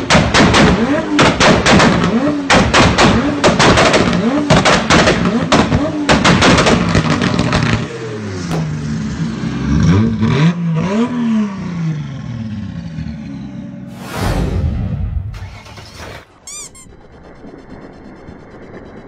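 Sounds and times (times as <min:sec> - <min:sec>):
exhaust pops and cracks: 0:00.0 - 0:07.9
car engine revving: 0:00.0 - 0:16.3.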